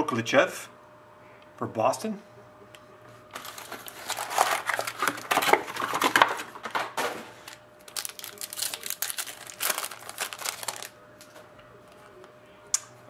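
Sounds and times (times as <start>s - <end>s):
foil wrapper crinkling and tearing: 3.4s - 6.5s, 7.4s - 11.3s.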